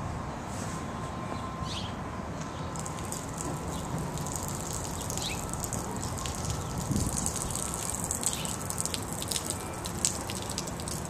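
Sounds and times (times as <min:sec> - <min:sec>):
wind rumbling on microphone: 0:03.0 - 0:08.5.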